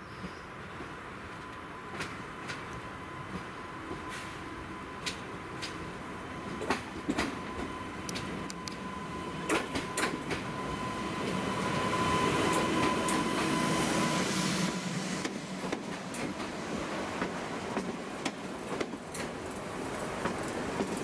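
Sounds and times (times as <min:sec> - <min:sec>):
electric train passing: 0:00.2 - 0:21.0
wheels clicking over rail joints: 0:17.2 - 0:21.0.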